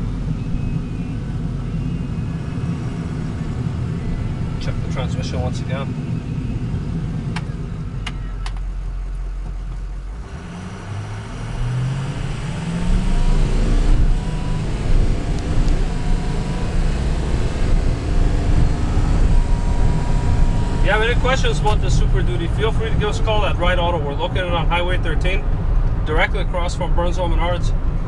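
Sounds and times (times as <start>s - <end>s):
diesel truck engine accelerating: 0.0s - 28.0s
road noise: 0.0s - 28.0s.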